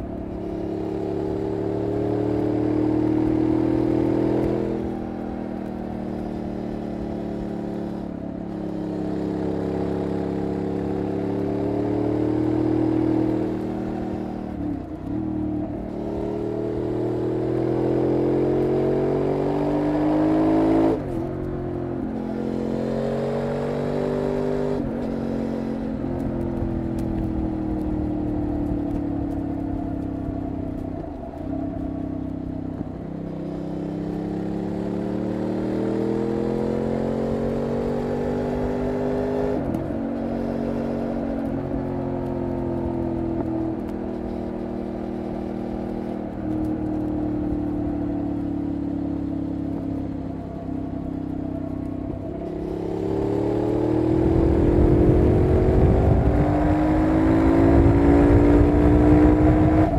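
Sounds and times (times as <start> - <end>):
motorcycle engine accelerating: 0.0 - 59.9.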